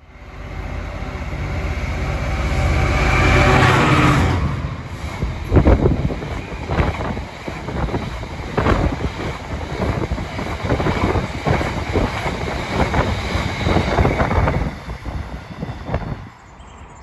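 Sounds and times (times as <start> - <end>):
train rumble: 0.0 - 17.0
train wheels clattering over joints: 5.0 - 16.2.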